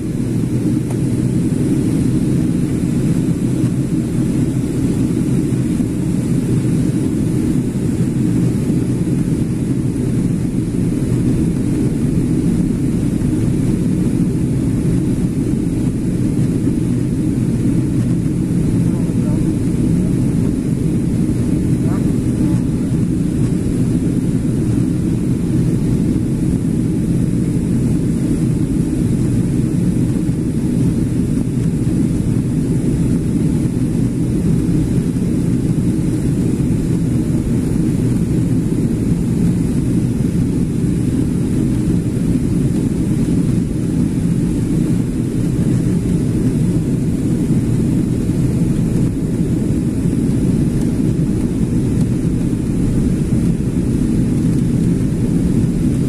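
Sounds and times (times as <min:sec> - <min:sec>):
rushing air: 0:00.0 - 0:41.5
jet engine rumble in cabin: 0:00.0 - 0:56.0.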